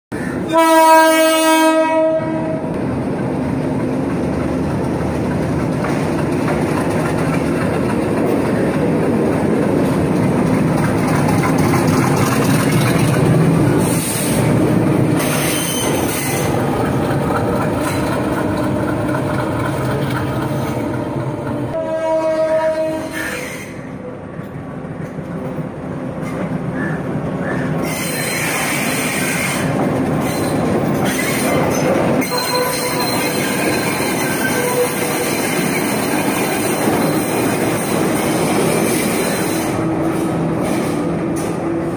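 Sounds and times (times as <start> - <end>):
diesel locomotive rumbling: 0.1 - 41.9
train horn blast: 0.4 - 2.8, 21.7 - 23.8, 32.2 - 33.3, 34.4 - 35.1.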